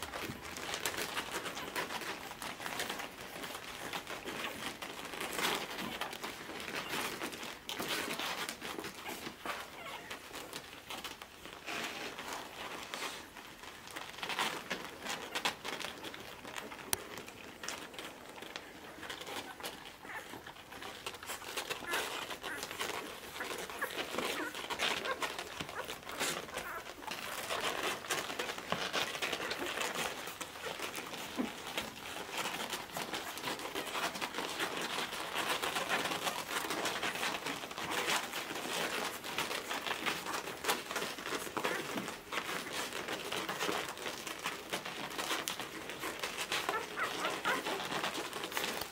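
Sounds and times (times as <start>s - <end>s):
puppies suckling: 0.0s - 48.9s
rustling on pad: 0.0s - 48.9s
dog licking a pup: 8.7s - 10.8s, 15.8s - 48.8s
puppy squeaks: 9.0s - 10.3s, 19.1s - 28.5s, 46.6s - 48.6s.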